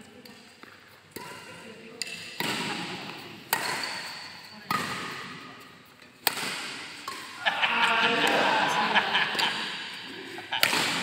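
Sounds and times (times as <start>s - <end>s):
sharp racket hits: 6.2s - 7.3s, 10.6s - 11.0s.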